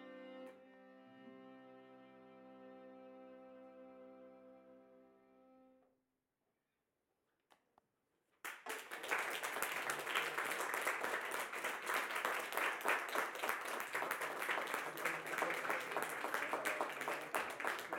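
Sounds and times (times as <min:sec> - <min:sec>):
audience applauding: 0:08.4 - 0:17.9.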